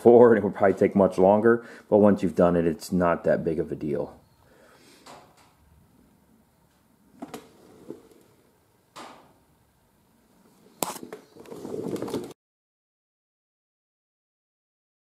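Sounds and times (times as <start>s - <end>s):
rubbing and rustling: 10.5s - 12.4s
camera handling noise: 10.8s - 11.2s.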